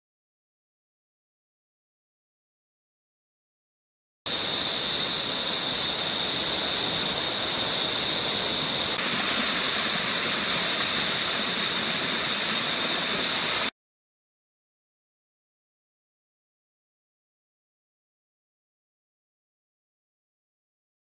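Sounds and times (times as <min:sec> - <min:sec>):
water rushing over rocks: 0:04.3 - 0:13.7.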